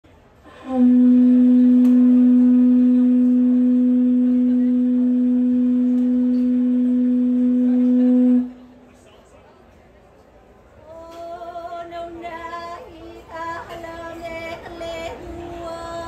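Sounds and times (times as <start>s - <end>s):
conch shell trumpet note: 0.5s - 8.7s.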